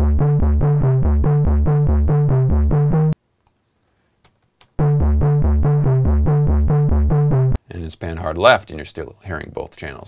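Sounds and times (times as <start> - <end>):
synthesizer loop of fast notes: 0.0 - 3.2, 4.8 - 7.6.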